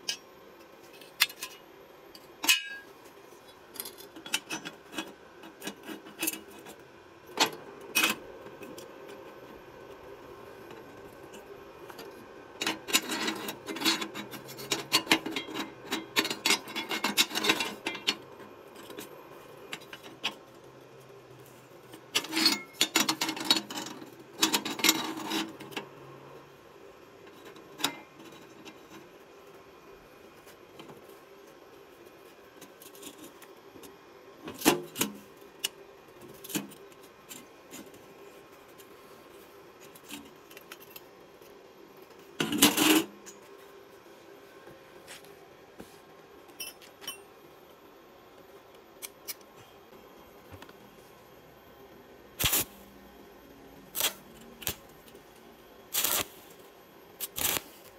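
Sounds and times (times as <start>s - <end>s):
steel tubing scraping and rattling: 12.6s - 18.2s, 22.0s - 25.8s.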